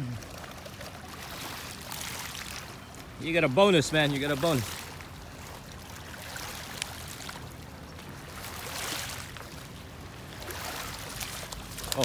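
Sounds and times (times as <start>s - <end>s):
river water lapping: 0.0s - 12.0s.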